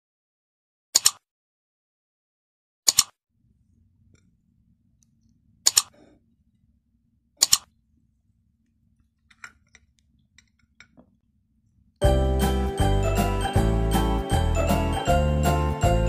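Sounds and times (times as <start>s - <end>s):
mouse clicks: 1.0s - 1.2s, 2.9s - 3.1s, 5.7s - 6.0s, 7.4s - 7.7s.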